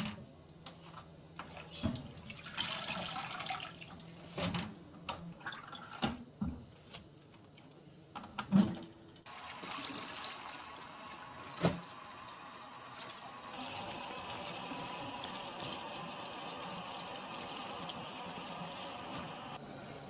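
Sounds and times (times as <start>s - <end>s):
tap water running into a colander: 1.4s - 4.2s, 9.3s - 19.6s.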